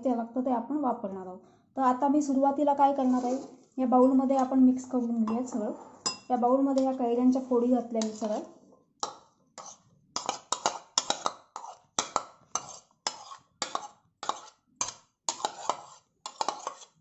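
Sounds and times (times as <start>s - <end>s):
spoon scraping a plastic board: 3.0s - 3.7s, 6.8s - 17.0s.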